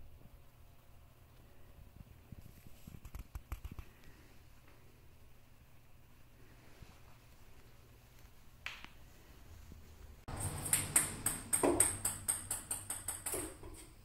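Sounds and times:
ping pong ball bouncing: 10.3 - 13.8.

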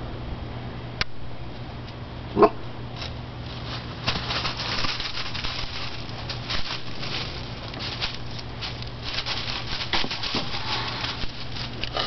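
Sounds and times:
dry leaves crunching underfoot: 2.9 - 12.0.

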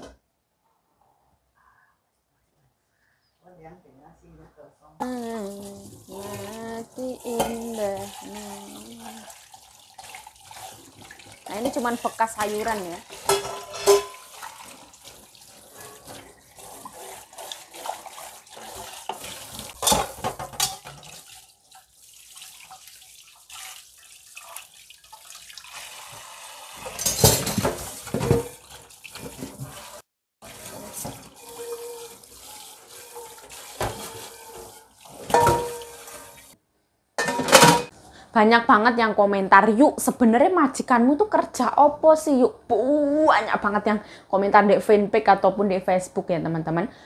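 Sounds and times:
sponge scrubbing pan: 5.0 - 25.8, 26.8 - 36.6
metal knocking against sink: 35.3 - 36.0.

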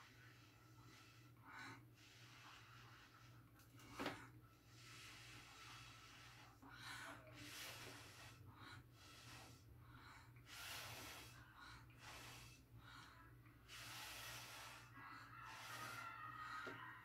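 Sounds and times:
puffs of breath through straw: 10.4 - 12.7, 13.6 - 16.2.

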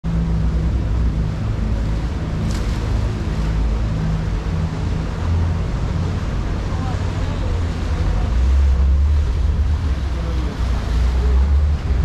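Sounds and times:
boat engine humming: 0.0 - 12.0
water: 0.0 - 12.0
wind on microphone: 0.1 - 12.0.

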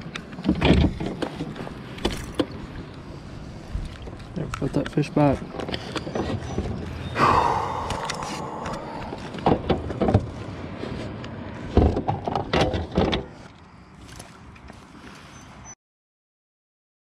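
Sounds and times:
rush of noise: 7.1 - 10.2.

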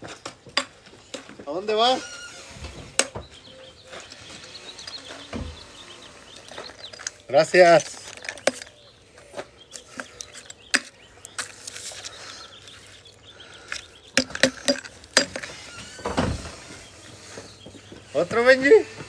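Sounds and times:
handling clicks and knocks: 0.0 - 1.5, 6.3 - 8.9, 9.7 - 16.3.

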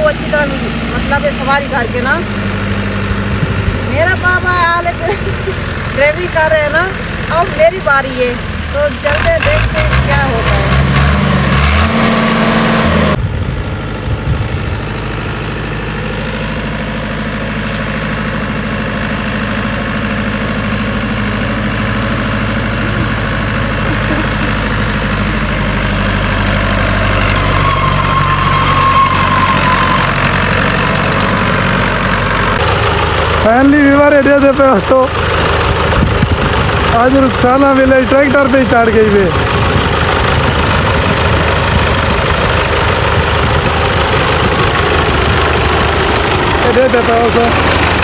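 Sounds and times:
tractor diesel engine running: 0.0 - 48.0.

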